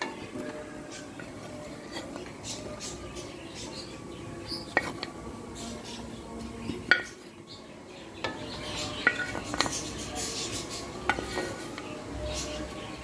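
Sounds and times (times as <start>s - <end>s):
utensil clinking against pot: 4.5s - 5.2s, 6.6s - 7.3s, 8.2s - 10.0s, 11.0s - 12.0s.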